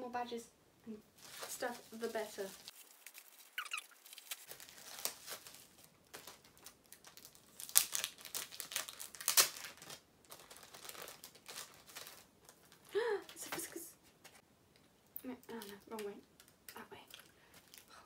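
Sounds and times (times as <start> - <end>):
packaging crinkling: 1.2 - 13.0.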